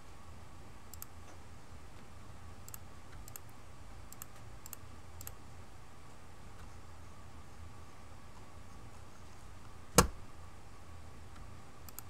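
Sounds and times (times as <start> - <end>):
steady low hum: 0.0 - 12.0
computer mouse clicking: 0.9 - 1.4, 2.6 - 5.4, 11.4 - 12.0.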